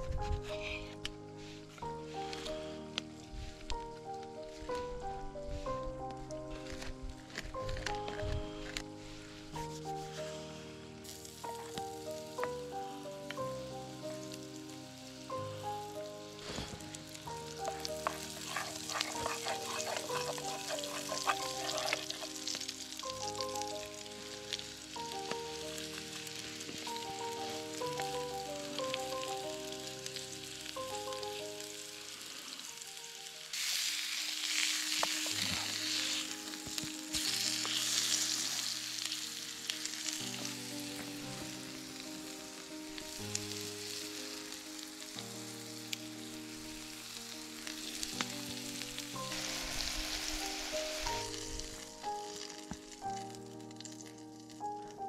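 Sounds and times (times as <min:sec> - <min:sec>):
gentle background music: 0:00.0 - 0:55.0
patty sizzling in pan: 0:06.6 - 0:54.8
wooden spoon scraping pan: 0:17.6 - 0:22.6.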